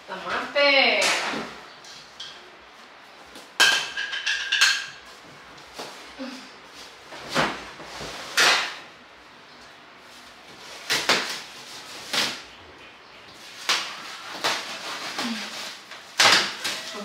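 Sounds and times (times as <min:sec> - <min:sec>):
plastic wrap rustling and ripping: 0:10.1 - 0:12.6, 0:13.3 - 0:17.0.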